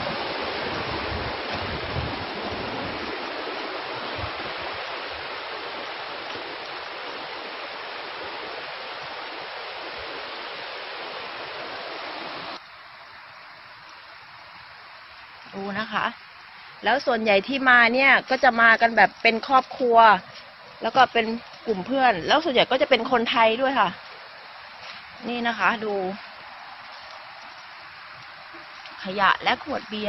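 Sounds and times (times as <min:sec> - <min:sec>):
stream water rushing: 0:00.0 - 0:30.0.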